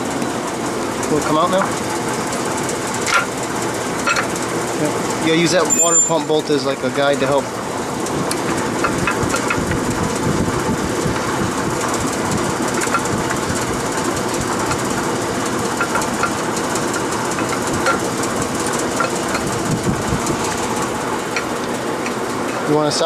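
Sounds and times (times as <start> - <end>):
metal clinks and scrapes: 5.6 - 6.3
steady rumbling noise: 7.4 - 23.0.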